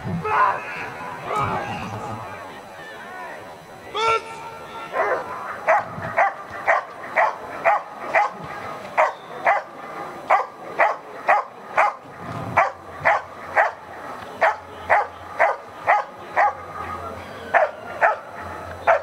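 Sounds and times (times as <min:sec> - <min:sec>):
dog barking: 0:04.9 - 0:08.4, 0:09.0 - 0:09.7, 0:10.3 - 0:13.8, 0:14.4 - 0:16.7, 0:17.5 - 0:18.3.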